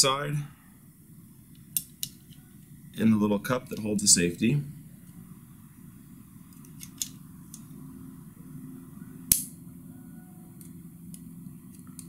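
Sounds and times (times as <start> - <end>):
pistol parts clicking: 1.6 - 2.4, 6.5 - 7.7, 9.3 - 9.5
sharp metallic click: 9.3 - 9.6.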